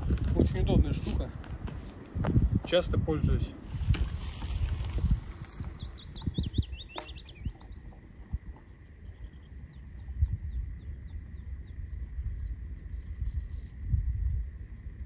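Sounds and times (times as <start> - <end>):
wind rumble on microphone: 0.0 - 15.0
songbird chirping: 4.2 - 15.0.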